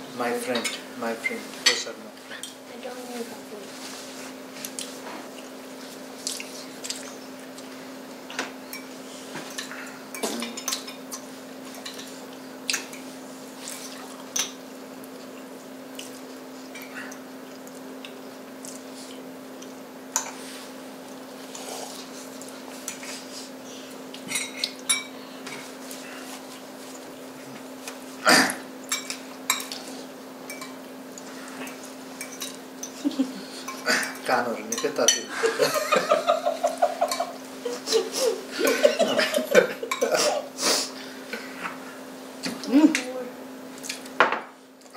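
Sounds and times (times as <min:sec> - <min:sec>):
cutlery clinking on plates: 0:08.3 - 0:12.1.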